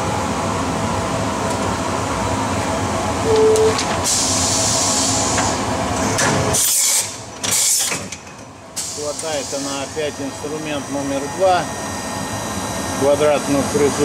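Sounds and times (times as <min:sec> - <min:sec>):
short beep: 0:03.2 - 0:03.8
milling machine humming: 0:08.9 - 0:14.0.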